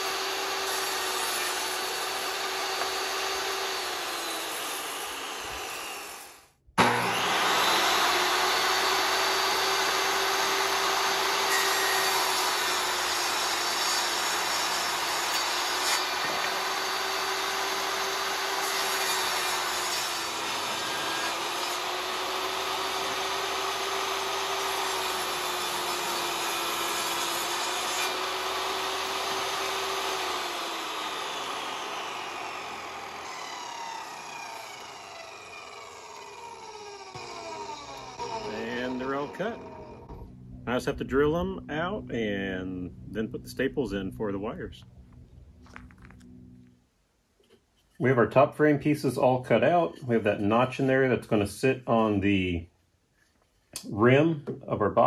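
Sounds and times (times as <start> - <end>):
table saw ripping wood: 0.0 - 40.3
saw winding down whine: 0.0 - 46.2.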